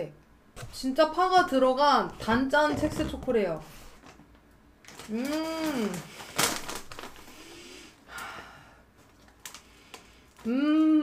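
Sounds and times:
foil bag crinkling: 0:03.0 - 0:07.8, 0:09.0 - 0:10.5
loud crackle of foil: 0:04.8 - 0:07.8, 0:09.1 - 0:10.5
person humming: 0:05.1 - 0:06.1, 0:10.4 - 0:11.0.

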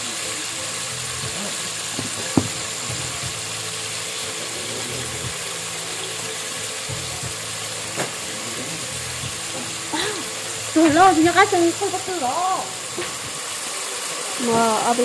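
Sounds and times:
fish sizzling in a pot: 0:00.0 - 0:15.0
sharp knock: 0:02.0 - 0:03.0.

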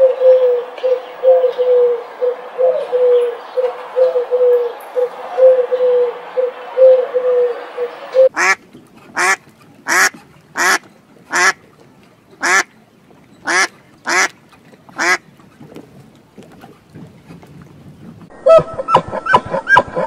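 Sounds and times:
pigeon cooing: 0:00.0 - 0:08.6
duck quacking: 0:07.4 - 0:11.6, 0:12.4 - 0:12.7, 0:13.4 - 0:14.4, 0:15.0 - 0:15.2.

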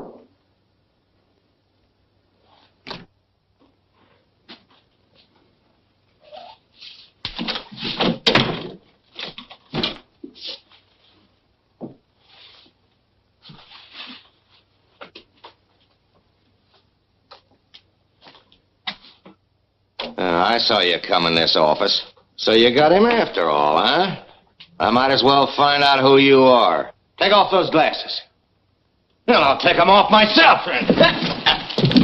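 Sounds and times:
person rustling and shuffling: 0:02.2 - 0:02.9, 0:03.5 - 0:08.2, 0:08.8 - 0:19.6, 0:30.2 - 0:32.0.

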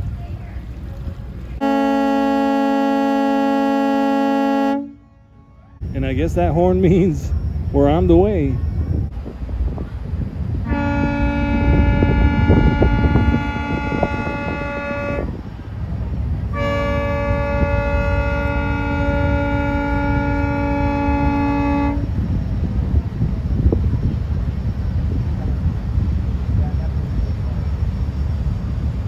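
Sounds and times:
ferry horn blasts: 0:01.6 - 0:06.1, 0:10.6 - 0:15.5, 0:16.5 - 0:22.2.

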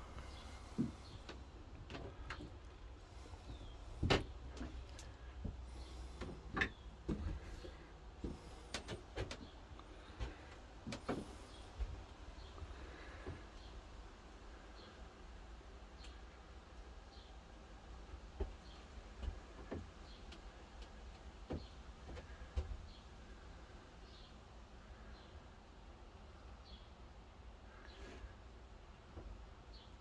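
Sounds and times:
knocks and creaks on wooden floor: 0:00.0 - 0:13.8, 0:18.1 - 0:23.0.

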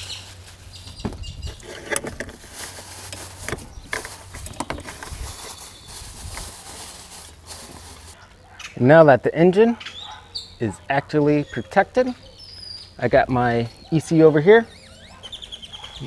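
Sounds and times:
hands working in engine bay: 0:01.4 - 0:05.6.

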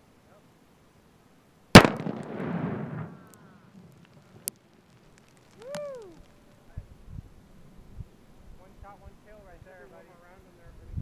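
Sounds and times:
loud explosion with rumble: 0:01.8 - 0:03.4.

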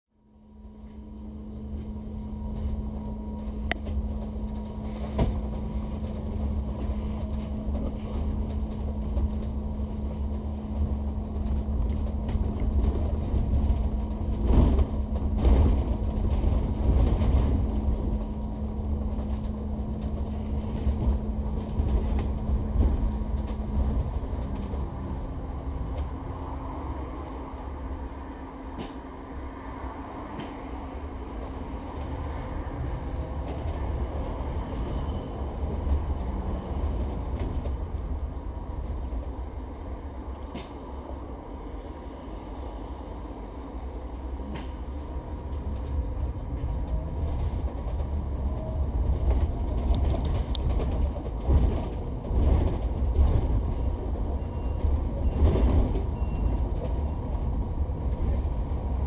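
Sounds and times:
bus engine rumble: 0:00.1 - 0:59.0
constant hum: 0:00.2 - 0:42.0
knocks and rattles from bus body: 0:02.4 - 0:24.9, 0:28.7 - 0:29.1, 0:31.4 - 0:38.1, 0:44.4 - 0:59.0.

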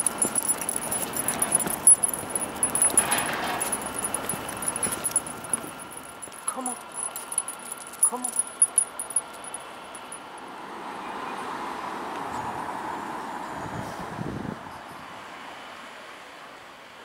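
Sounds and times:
dog collar tags jingling: 0:00.0 - 0:10.4.

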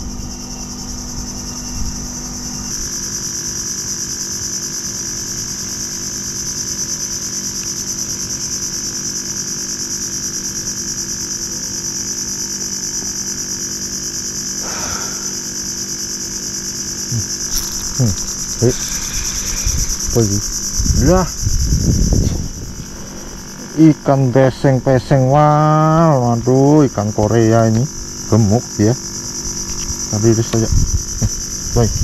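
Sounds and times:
low steady hum: 0:00.0 - 0:03.3, 0:17.1 - 0:26.2
insects droning: 0:00.0 - 0:32.0.

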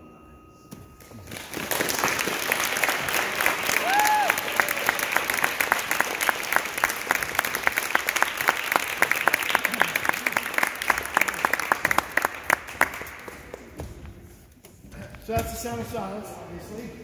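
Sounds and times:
audience applauding: 0:01.0 - 0:13.7.

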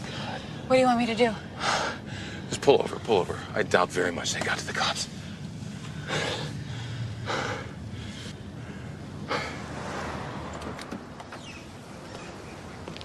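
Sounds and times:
car interior hum: 0:00.0 - 0:13.0
person breathing hard: 0:01.5 - 0:02.5, 0:05.2 - 0:09.8.

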